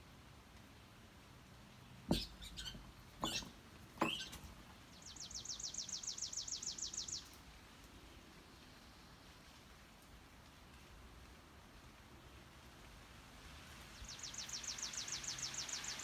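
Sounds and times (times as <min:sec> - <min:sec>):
small bird trilling: 0:02.1 - 0:04.4.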